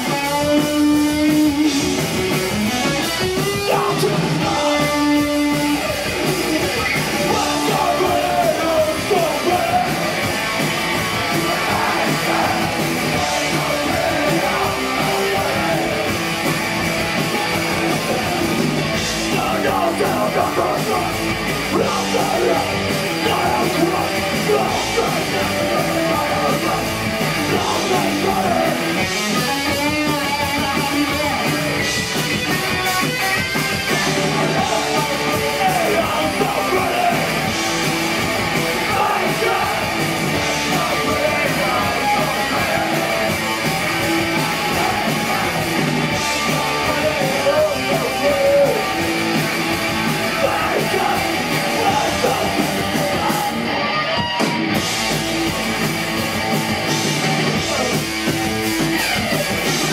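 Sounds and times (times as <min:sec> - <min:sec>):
bass guitar: 0:00.0 - 0:59.9
drums: 0:00.0 - 0:59.9
electric guitars: 0:00.0 - 0:59.9
person singing: 0:03.6 - 0:05.6, 0:07.2 - 0:10.3, 0:11.2 - 0:16.2, 0:17.5 - 0:31.8, 0:34.0 - 0:37.5, 0:38.8 - 0:43.5, 0:44.2 - 0:49.0, 0:50.2 - 0:53.8.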